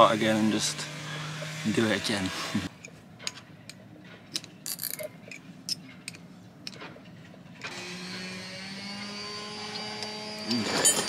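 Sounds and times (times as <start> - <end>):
spanners clinking on metal: 10.5 - 11.0.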